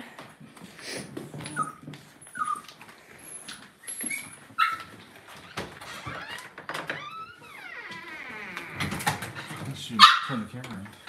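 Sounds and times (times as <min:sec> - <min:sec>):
puppies whimpering: 0:01.4 - 0:02.8.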